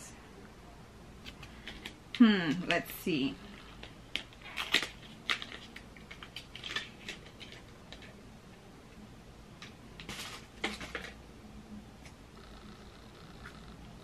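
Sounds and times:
packaging rustle: 0:03.8 - 0:08.1.

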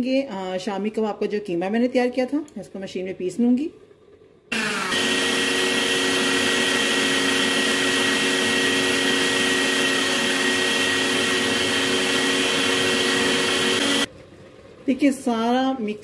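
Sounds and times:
electric meat grinder whining: 0:04.5 - 0:14.1.

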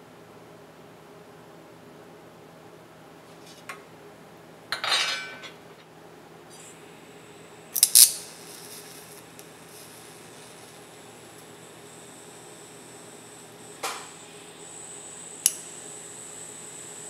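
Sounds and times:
tools clattering on steel table: 0:04.7 - 0:05.9
welding arc hiss and hum: 0:05.6 - 0:17.0
welding arc crackle: 0:06.5 - 0:17.0.

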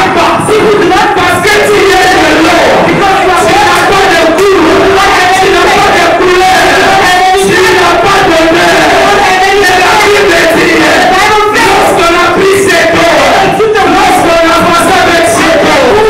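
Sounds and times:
man and woman singing amplified: 0:00.0 - 0:16.0.

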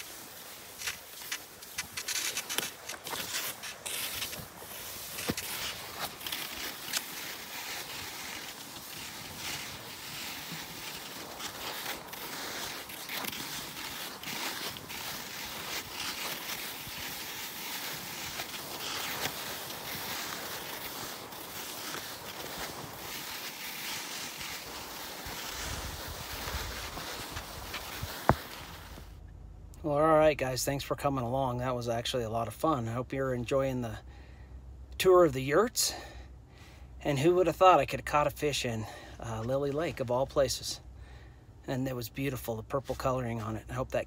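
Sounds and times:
skis sliding on snow: 0:00.0 - 0:29.2
snow crunches and clicks: 0:00.0 - 0:29.2.

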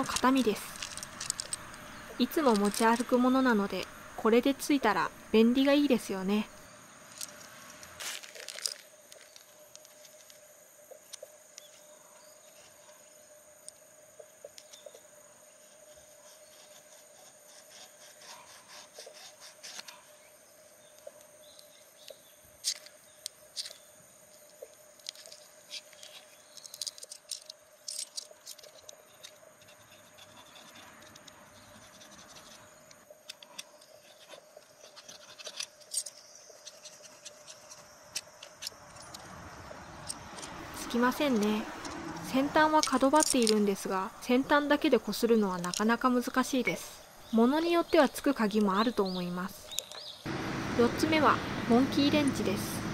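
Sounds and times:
key scraping fire-starter rod: 0:00.0 - 0:03.7, 0:24.5 - 0:43.8
insect chirring: 0:00.0 - 0:50.4.

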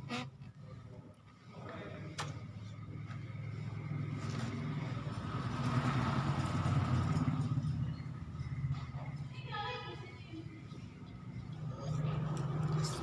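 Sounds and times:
motor vehicle passing: 0:03.2 - 0:09.3, 0:10.0 - 0:13.0.

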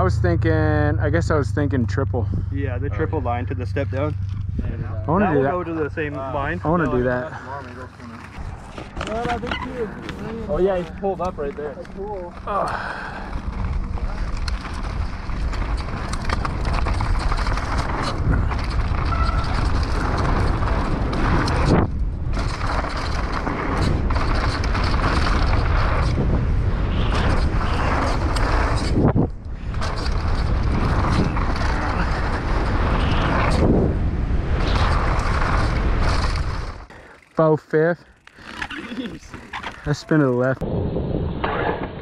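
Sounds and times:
wind buffeting on microphone: 0:02.2 - 0:07.5, 0:08.2 - 0:36.9
bike chassis rattle: 0:05.6 - 0:33.6, 0:34.5 - 0:40.5
tyre roar: 0:12.1 - 0:34.0.

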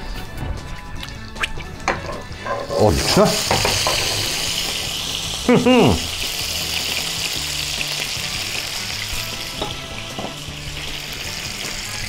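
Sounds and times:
fat spitting: 0:01.0 - 0:06.4
bacon sizzling in a pan: 0:02.0 - 0:12.0.

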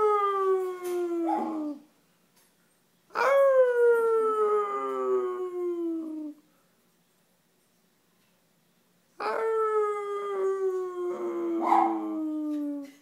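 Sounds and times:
dog howling: 0:00.0 - 0:01.8, 0:09.2 - 0:13.0
man howling: 0:00.0 - 0:01.8, 0:03.2 - 0:06.4, 0:09.2 - 0:13.0.

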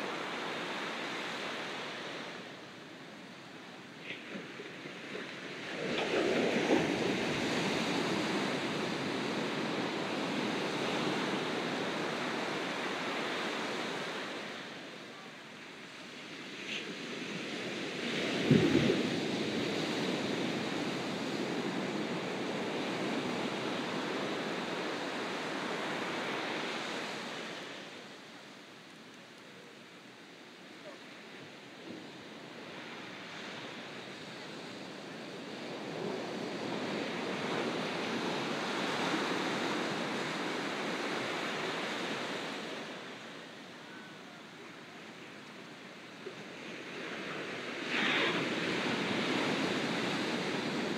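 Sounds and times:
wave washing up sand: 0:00.0 - 0:28.8, 0:29.7 - 0:50.9
ocean waves crashing: 0:46.0 - 0:50.9.

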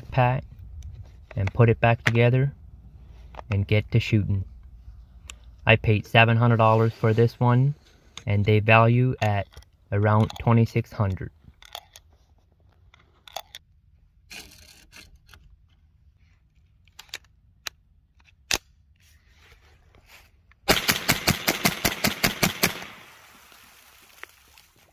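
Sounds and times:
rifle shots in rapid succession: 0:20.7 - 0:23.2.

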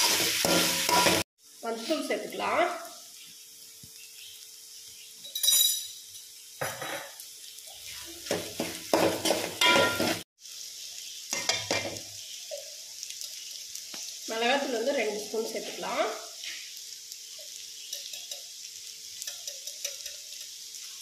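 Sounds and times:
metal ladle scraping a pan: 0:00.0 - 0:01.2
vegetables sizzling in oil: 0:00.0 - 0:21.0.

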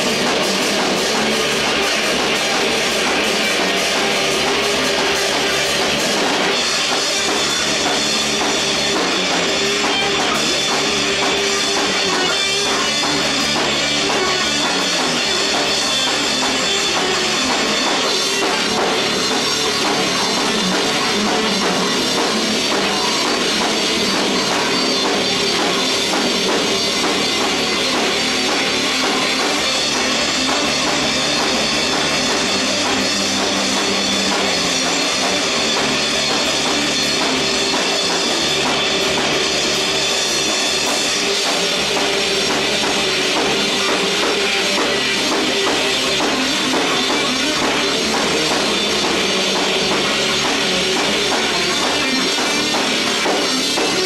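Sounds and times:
rock band playing live: 0:00.0 - 0:54.0.

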